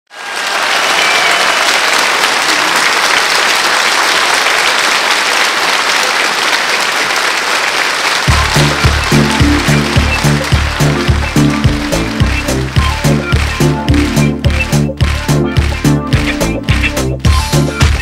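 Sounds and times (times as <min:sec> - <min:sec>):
audience applauding: 0:00.1 - 0:18.0
backing music with heavy bass beat: 0:08.3 - 0:18.0.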